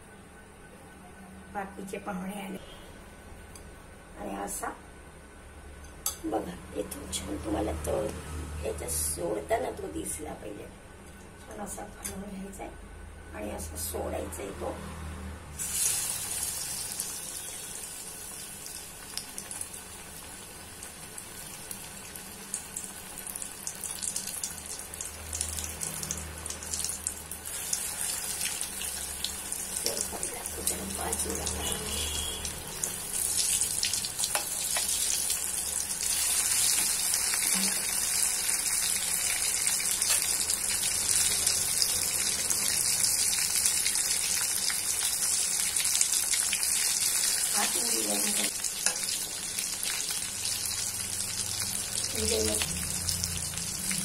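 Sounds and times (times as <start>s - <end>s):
deep-frying sizzle and crackle: 15.0s - 54.0s.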